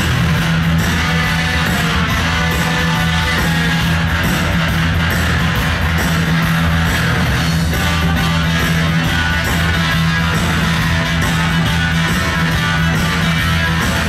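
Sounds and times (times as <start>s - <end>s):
rock and roll music with guitar: 0.0s - 14.0s.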